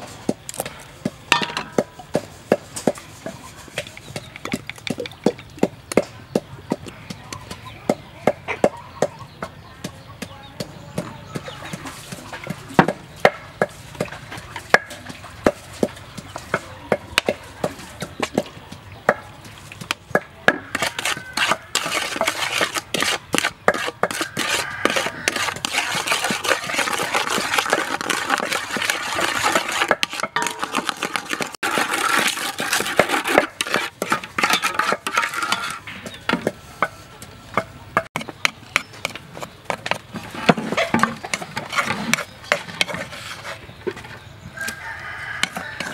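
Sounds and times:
wooden spoon scraping metal bowl: 1.5s - 5.6s, 19.1s - 45.9s.

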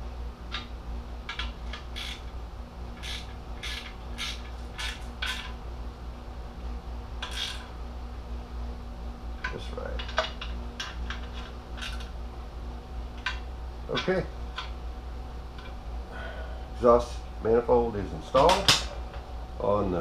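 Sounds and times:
socket wrench clicking: 3.0s - 5.5s.

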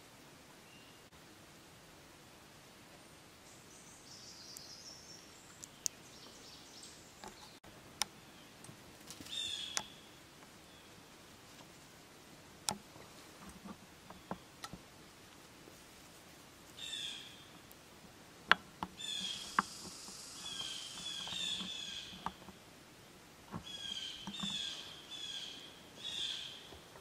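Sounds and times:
songbirds calling: 3.4s - 11.9s, 12.6s - 15.2s, 16.6s - 27.0s.

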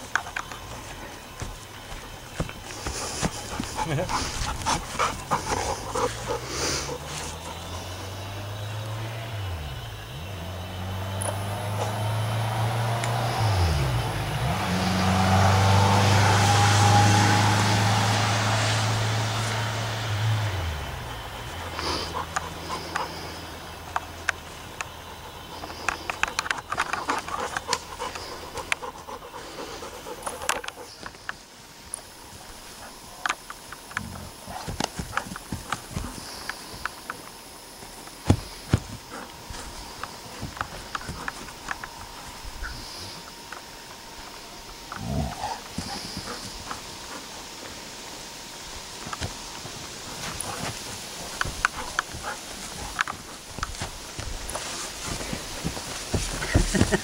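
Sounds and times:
engine humming: 0.0s - 57.0s
dog panting: 1.8s - 7.9s, 21.7s - 23.5s, 24.3s - 31.1s, 45.2s - 47.9s, 50.0s - 57.0s.

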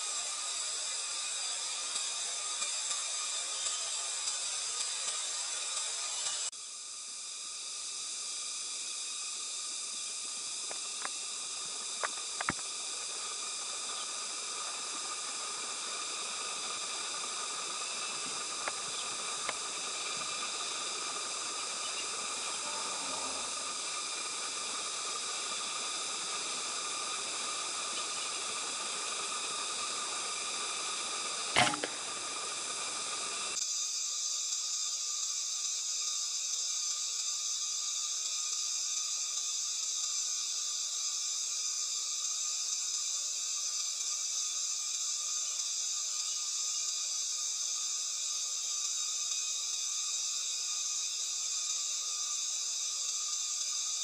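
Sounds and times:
outdoor hiss with buzzing: 0.0s - 54.0s
sharp knock: 31.6s - 32.0s.

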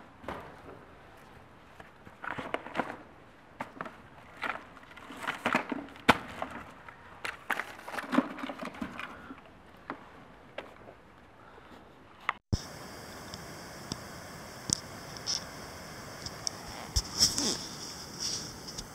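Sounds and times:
footsteps on gritty dirt: 16.2s - 18.9s.

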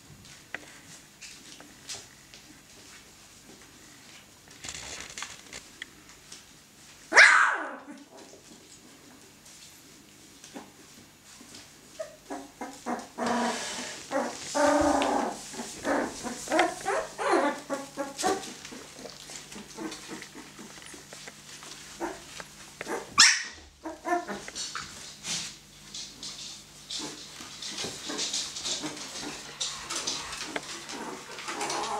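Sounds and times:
puppies yipping and whining: 11.9s - 24.8s.

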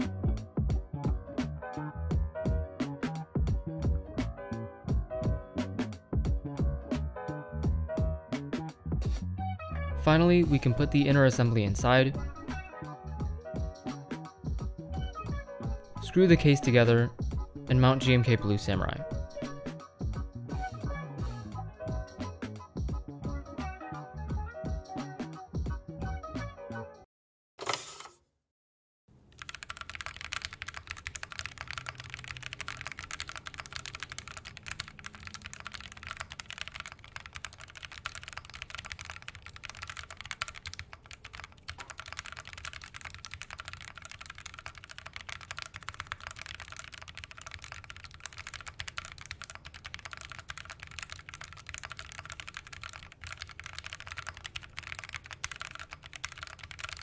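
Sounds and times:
rapid mechanical keyboard typing: 10.1s - 12.6s, 16.0s - 19.6s, 29.2s - 57.0s.

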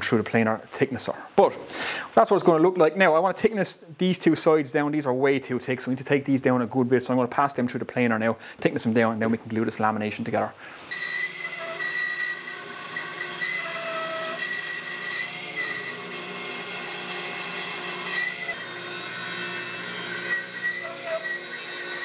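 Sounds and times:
bandsaw cutting wood: 10.9s - 22.0s.

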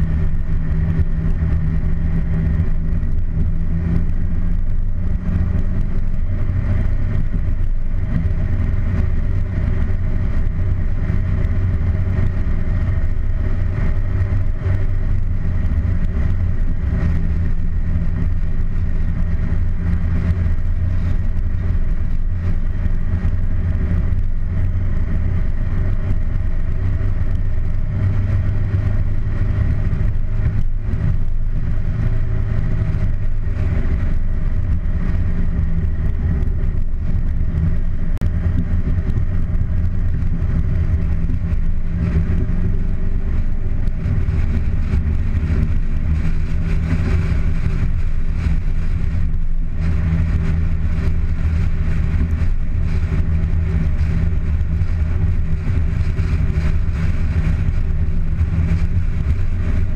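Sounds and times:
car engine running: 0.0s - 59.9s
road and air noise: 0.0s - 59.9s.

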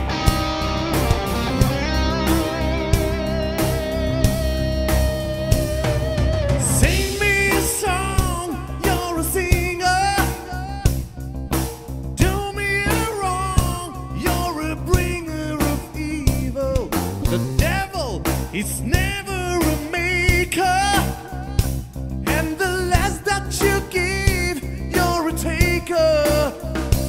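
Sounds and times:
bass guitar: 0.0s - 27.0s
drum kit with cymbal strikes: 0.0s - 27.0s
electric guitar: 0.0s - 27.0s
man singing with vibrato: 6.6s - 11.4s, 12.2s - 27.0s.

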